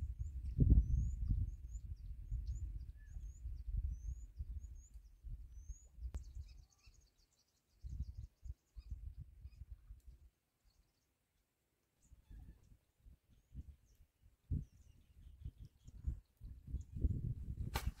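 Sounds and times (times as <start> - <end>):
wind buffeting microphone: 0.0 - 6.6, 7.8 - 10.2, 12.2 - 18.0
small bird chirping: 0.2 - 11.1.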